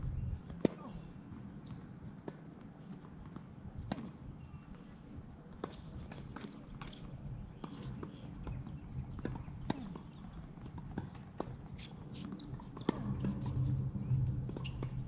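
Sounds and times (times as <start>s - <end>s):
tennis ball bounces: 5.6s - 15.0s
low steady hum: 12.8s - 15.0s.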